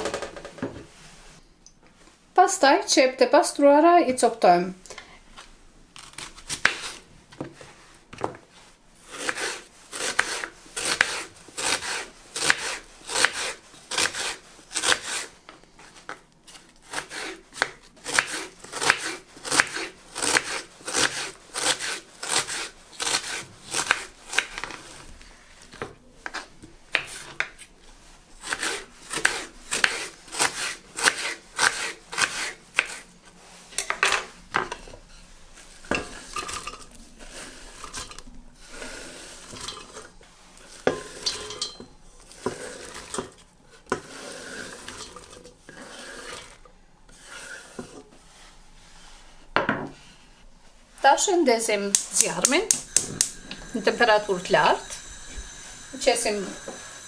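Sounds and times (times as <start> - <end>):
knife chopping on wooden board: 9.2 - 15.2.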